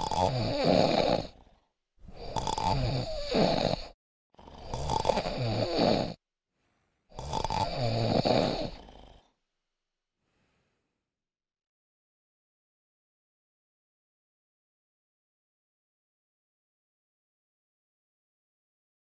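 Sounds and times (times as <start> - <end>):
person snoring: 0.0 - 6.2, 7.1 - 9.4.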